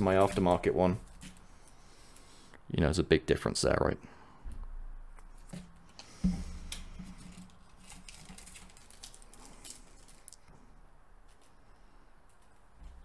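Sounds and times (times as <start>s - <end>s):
plastic bag rustling: 5.4s - 10.5s.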